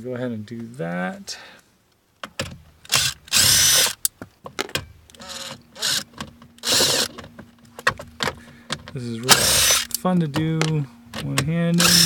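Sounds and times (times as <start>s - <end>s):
impact driver bursts: 2.9s - 4.0s, 5.2s - 7.2s, 9.3s - 10.0s, 11.8s - 12.0s.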